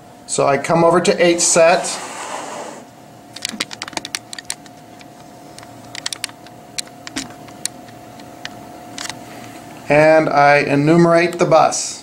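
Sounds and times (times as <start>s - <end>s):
laptop taps and clicks: 3.4s - 5.1s, 5.9s - 9.2s.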